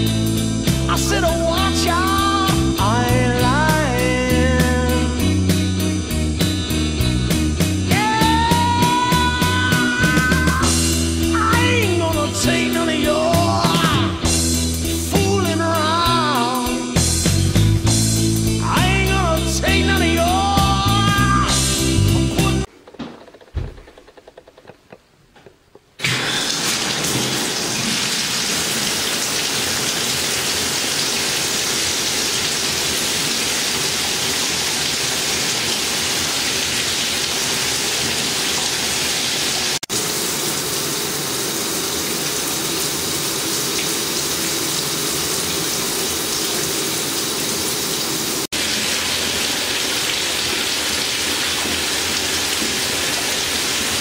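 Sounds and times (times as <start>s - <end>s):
shower head spraying water: 26.0s - 54.0s.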